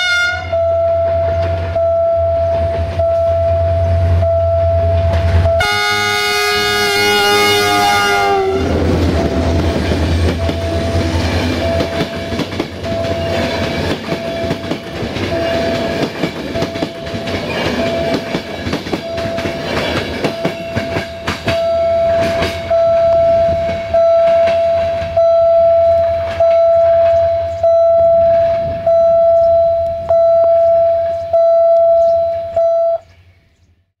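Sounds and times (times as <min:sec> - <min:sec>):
low train rumble: 0:00.0 - 0:33.8
electronic warning beep: 0:00.5 - 0:05.7, 0:09.0 - 0:09.6, 0:10.3 - 0:33.1
train wheels clattering on rails: 0:00.8 - 0:03.1, 0:08.6 - 0:32.6.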